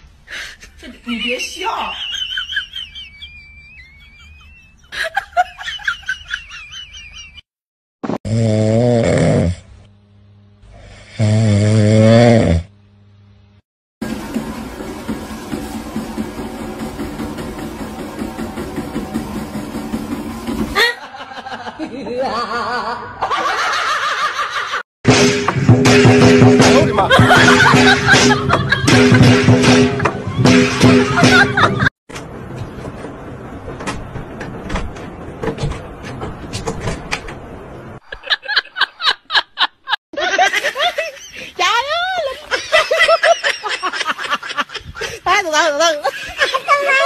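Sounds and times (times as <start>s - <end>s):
treadmill motor hum: 14.0s - 21.0s.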